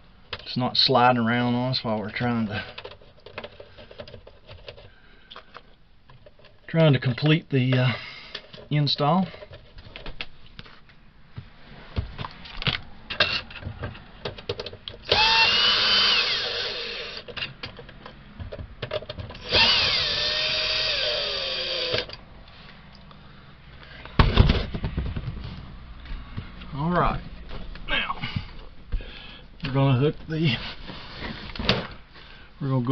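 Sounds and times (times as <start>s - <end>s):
cordless drill driving screws: 15.0s - 17.3s, 19.4s - 22.2s.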